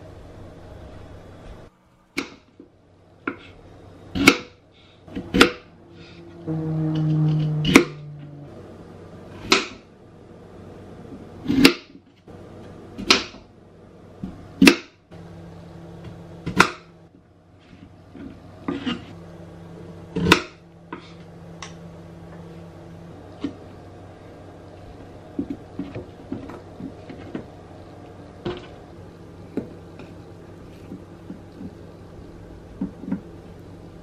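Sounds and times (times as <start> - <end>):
faint steady hum: 0.0 - 34.0.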